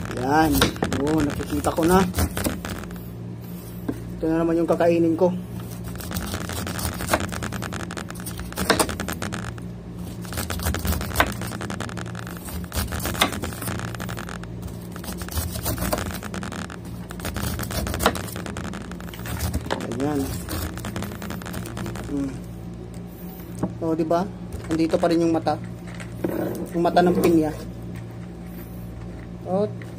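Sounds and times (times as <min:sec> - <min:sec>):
knife scraping pineapple skin: 0:00.0 - 0:03.0, 0:05.6 - 0:22.3
steady low hum: 0:00.0 - 0:29.9.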